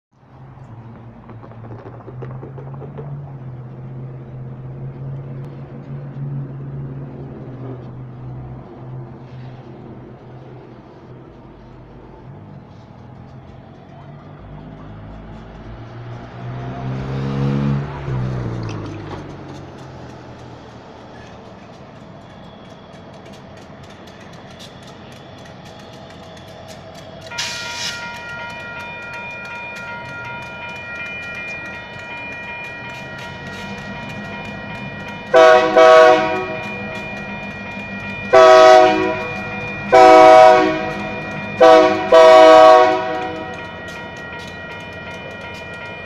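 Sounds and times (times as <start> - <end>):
diesel locomotive engine droning: 0.1 - 46.0
faint clicks: 18.6 - 35.3.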